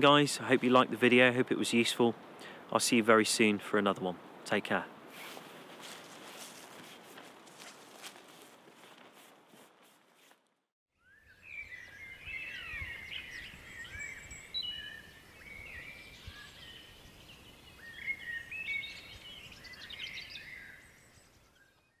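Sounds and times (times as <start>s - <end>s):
songbirds singing and chirping: 11.0s - 22.0s.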